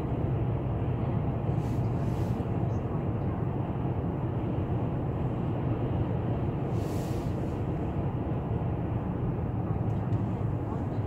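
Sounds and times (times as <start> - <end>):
car cabin road and engine rumble: 0.0 - 11.0
brief hiss: 6.7 - 7.6.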